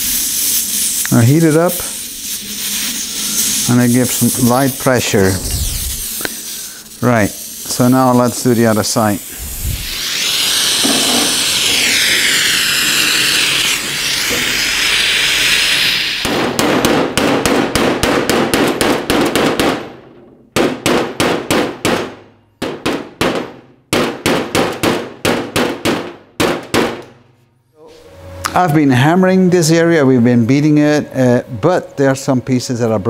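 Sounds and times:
gas torch hissing: 0:00.0 - 0:17.2.

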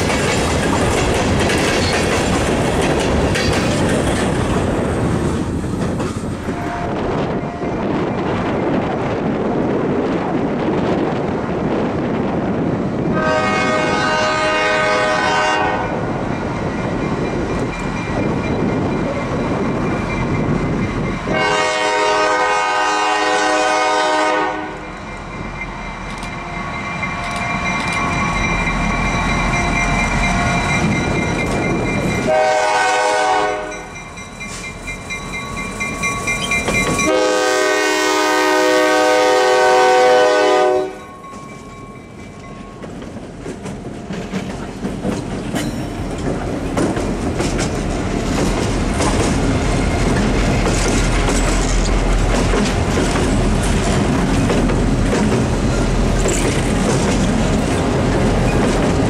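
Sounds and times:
locomotive horn blasts: 0:13.2 - 0:16.0, 0:21.3 - 0:24.9, 0:32.2 - 0:33.9, 0:37.0 - 0:41.1.

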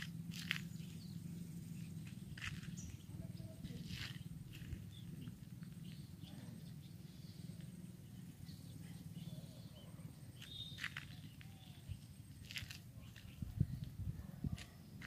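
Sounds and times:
faint bird chirps: 0:00.4 - 0:15.0
wind rumbling on microphone: 0:02.2 - 0:05.9, 0:11.8 - 0:15.0.

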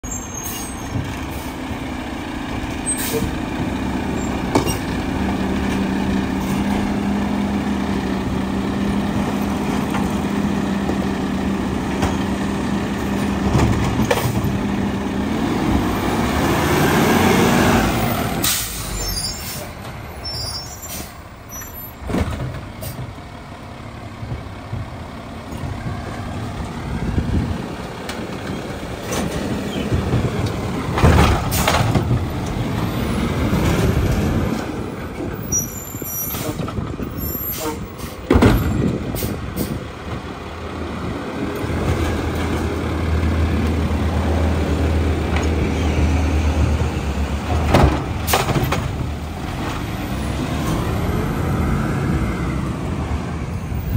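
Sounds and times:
air brakes hissing: 0:00.1 - 0:01.6, 0:02.9 - 0:03.4, 0:18.4 - 0:21.8, 0:35.5 - 0:38.3.

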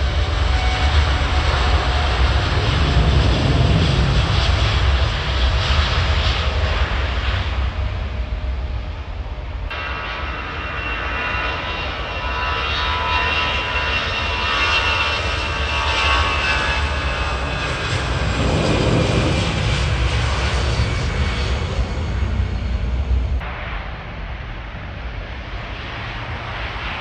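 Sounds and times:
jet engines whining: 0:00.0 - 0:27.0
low engine rumble: 0:16.8 - 0:25.2.

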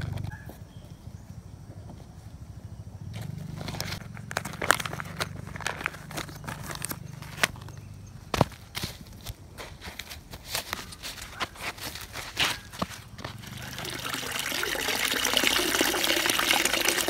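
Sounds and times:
leaves and soil rustling: 0:03.1 - 0:15.9
plastic bag crinkling: 0:03.7 - 0:07.6.

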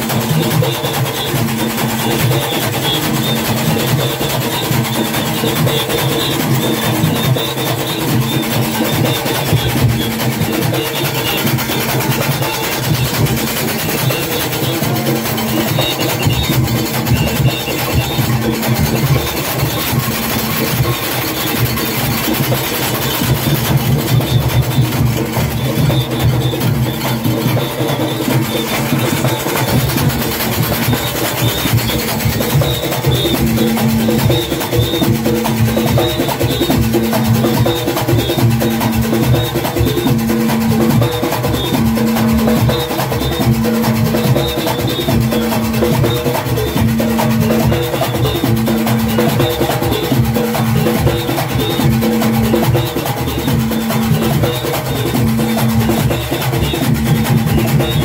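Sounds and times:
band playing loudly: 0:00.0 - 0:58.0
cowbells: 0:00.0 - 0:58.0
goatskin drums: 0:00.0 - 0:58.0.

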